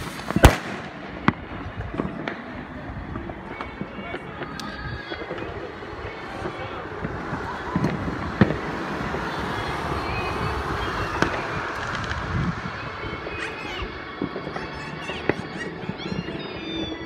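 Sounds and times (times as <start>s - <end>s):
sharp firework cracks: 0.0s - 9.9s, 11.0s - 12.7s
distant fireworks rumble and crackle: 0.0s - 17.0s
whistling rockets: 0.0s - 17.0s.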